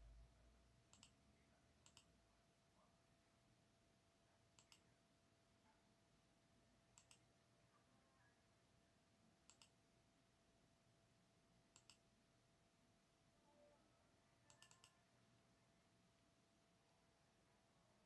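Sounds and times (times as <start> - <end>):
faint steady hum: 0.0 - 18.0
computer mouse clicks: 0.9 - 1.2, 1.8 - 2.1, 4.6 - 4.9, 6.9 - 7.3, 9.4 - 9.8, 11.7 - 12.0, 14.4 - 15.0.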